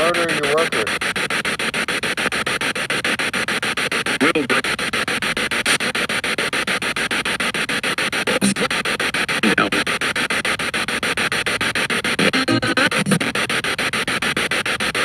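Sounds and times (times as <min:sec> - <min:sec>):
clipped radio voices: 0:00.0 - 0:01.0, 0:04.2 - 0:04.8, 0:08.2 - 0:08.8, 0:09.4 - 0:09.9
chopped radio static: 0:00.0 - 0:15.0.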